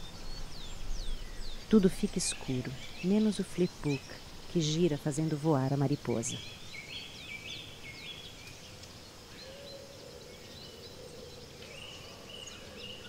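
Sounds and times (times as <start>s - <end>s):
birds calling: 0.0s - 13.0s
steady hiss: 2.7s - 13.0s.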